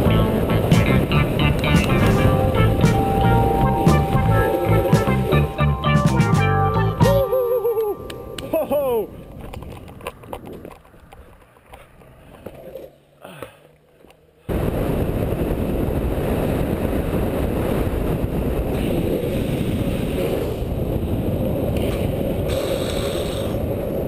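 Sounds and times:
wind rushing over microphone: 0:00.0 - 0:05.5, 0:14.5 - 0:24.0
skateboard wheels rolling on asphalt: 0:00.0 - 0:05.8, 0:09.1 - 0:24.0.

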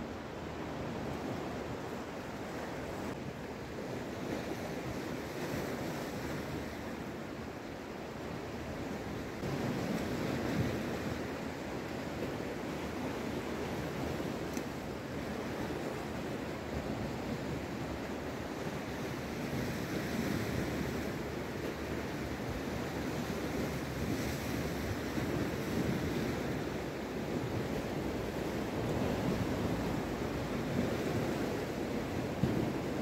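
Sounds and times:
sea washing against shore: 0:08.4 - 0:33.0
wind on microphone: 0:08.4 - 0:33.0.

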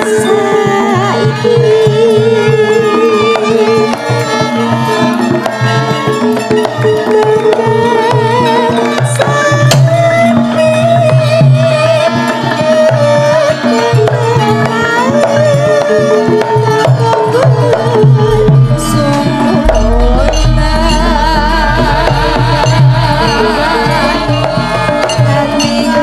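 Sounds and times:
hand drums steady beat: 0:16.4 - 0:26.0
wavering high melody: 0:17.4 - 0:26.0.

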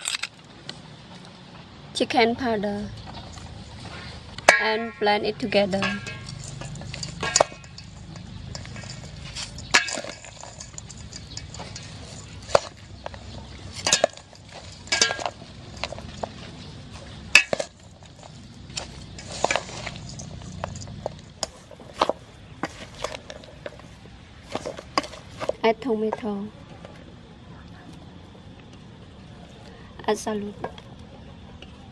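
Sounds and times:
spoon clinking against steel bowl: 0:05.8 - 0:16.6
soft scraping in bowl: 0:05.9 - 0:26.3.

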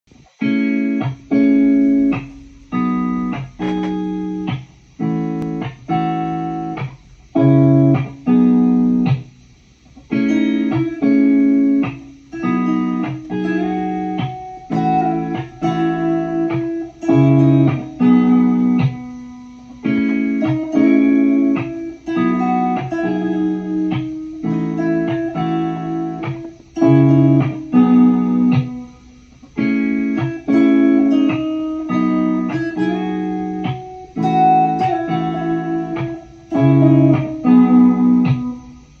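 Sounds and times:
plucked clean guitar chords: 0:00.2 - 0:39.0.

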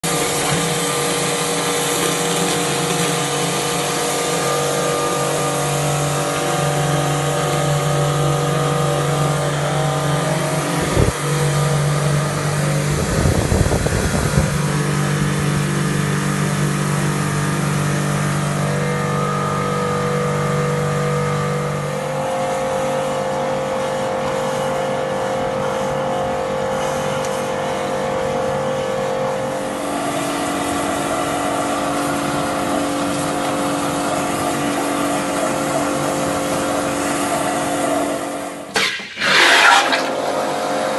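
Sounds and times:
drain jetter engine drone: 0:00.0 - 0:40.9
water hissing in hose: 0:29.8 - 0:40.4.

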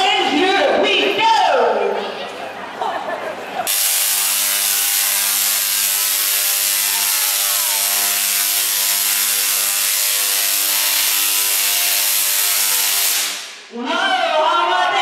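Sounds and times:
tesla coil buzzing and crackling: 0:03.7 - 0:13.7.

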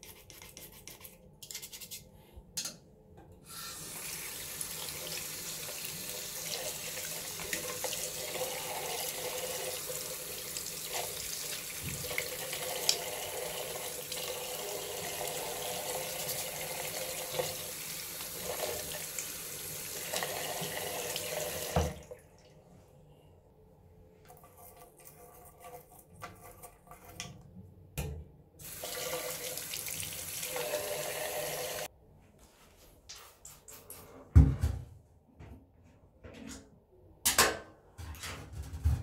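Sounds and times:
tap water running into drain: 0:03.6 - 0:22.2, 0:28.6 - 0:31.9.

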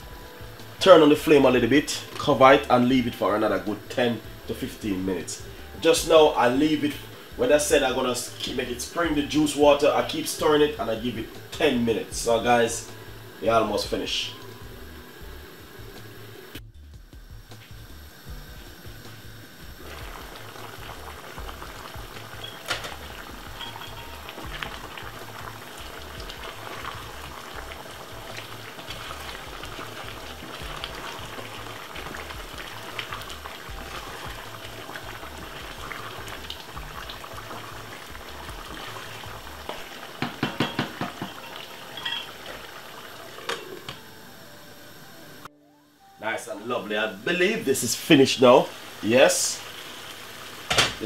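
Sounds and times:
stew bubbling in a pot: 0:18.0 - 0:44.0
wooden spoon knocking a pot: 0:40.2 - 0:41.4.

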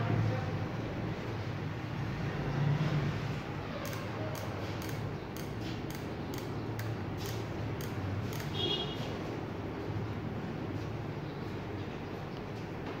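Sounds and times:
soldering iron trigger clicking: 0:03.8 - 0:08.6.

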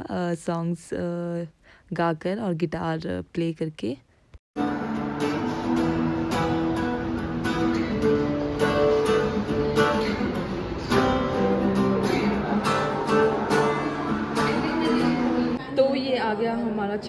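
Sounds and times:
acoustic guitar strumming: 0:04.6 - 0:15.6.

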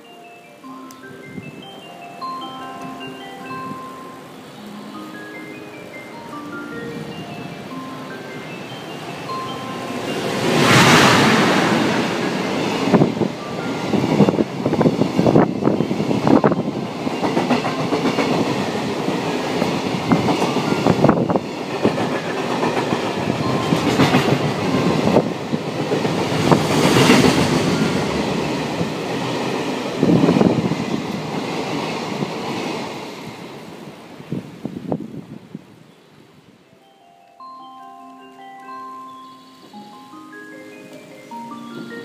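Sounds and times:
train rumble: 0:06.1 - 0:35.6
train wheels clacking: 0:08.9 - 0:33.6.

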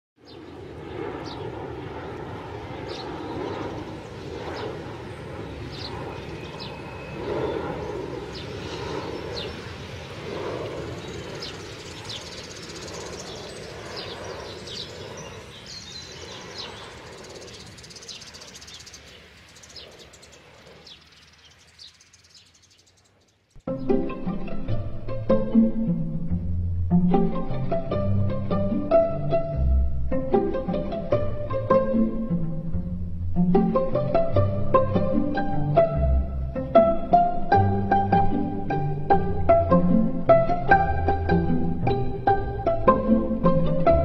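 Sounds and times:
birds chirping: 0:00.2 - 0:01.6, 0:02.7 - 0:24.8
aircraft rumble: 0:00.2 - 0:21.4, 0:23.6 - 0:44.0
distant traffic rumble: 0:00.2 - 0:44.0.

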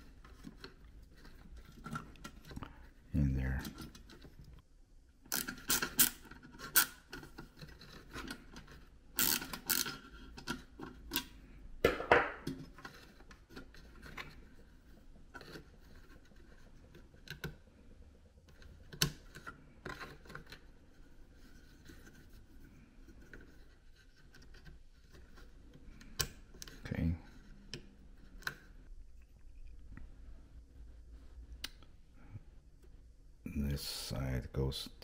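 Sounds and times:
screwdriver scraping and clicking: 0:05.3 - 0:11.3.

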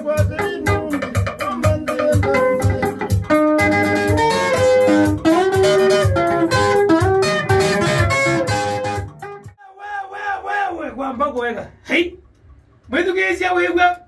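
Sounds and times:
guitar picking a melody: 0:00.0 - 0:09.6
steady drum beat: 0:00.0 - 0:09.6
bass: 0:02.1 - 0:09.6.

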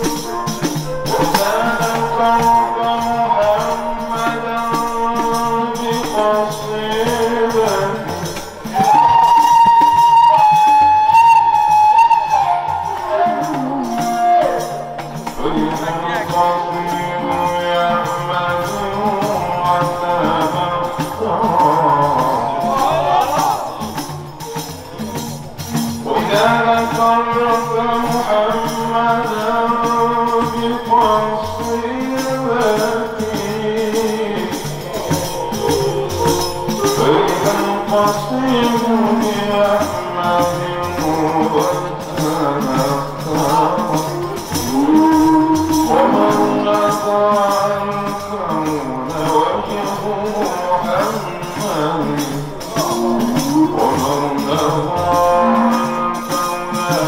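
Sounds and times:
hand percussion beat: 0:00.0 - 0:57.0
men chanting into microphones: 0:00.0 - 0:57.0.

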